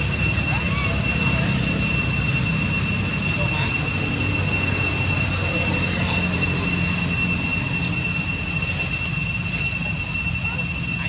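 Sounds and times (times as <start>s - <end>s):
cicadas droning: 0.0s - 11.0s.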